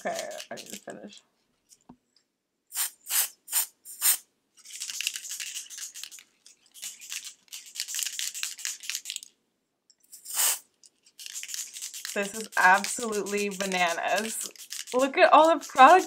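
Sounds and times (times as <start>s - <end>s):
aerosol spray hissing: 2.7s - 4.2s, 10.2s - 10.7s.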